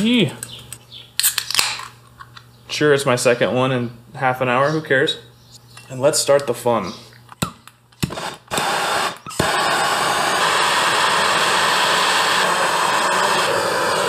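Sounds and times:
torch igniter clicks: 7.6 - 14.0
gas torch flame hissing: 8.0 - 14.0.

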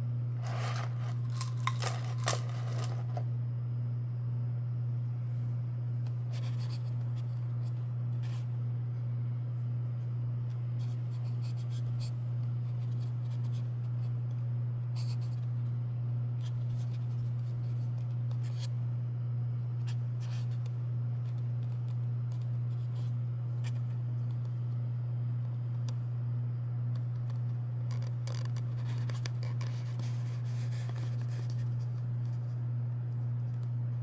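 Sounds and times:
low electrical hum: 0.0 - 34.0.

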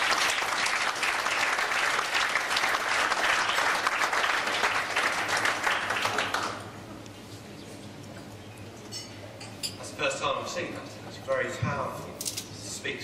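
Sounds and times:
audience applauding: 0.0 - 6.8.

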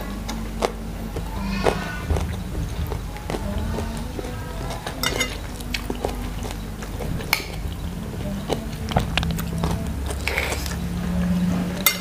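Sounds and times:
chewing: 0.0 - 12.0
soft background music: 0.0 - 12.0
cutlery clinking on ceramic plate: 5.0 - 5.5.

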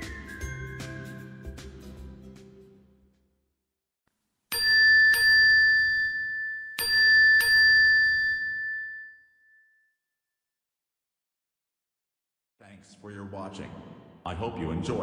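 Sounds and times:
bell-like ding chime: 4.5 - 10.0.

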